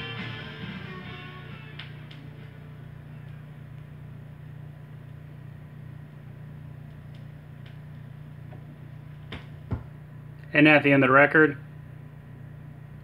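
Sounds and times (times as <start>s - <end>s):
music: 0.0s - 3.4s
turntable hum: 0.0s - 13.0s.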